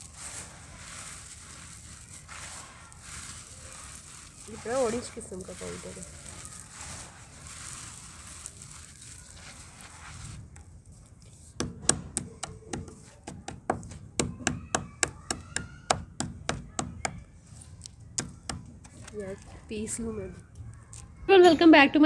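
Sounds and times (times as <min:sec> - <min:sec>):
brick powder rubbed between hands: 0:00.0 - 0:14.2
stone pounding brick on concrete: 0:11.6 - 0:17.2.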